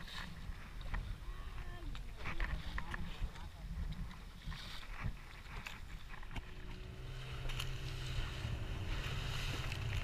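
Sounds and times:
wind: 0.0 - 10.0
boat engine humming: 5.6 - 10.0.

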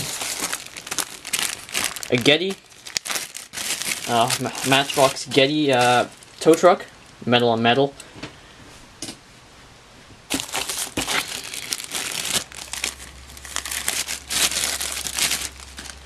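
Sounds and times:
plastic bag crinkling: 0.0 - 6.9, 10.3 - 16.0.

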